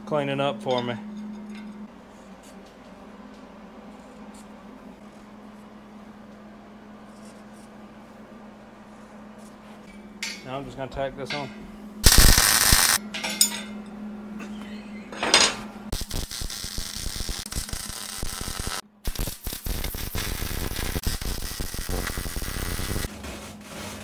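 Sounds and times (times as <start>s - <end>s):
steady electrical hum: 0.0s - 24.0s
welding arc crackle: 12.0s - 13.0s, 15.9s - 23.1s.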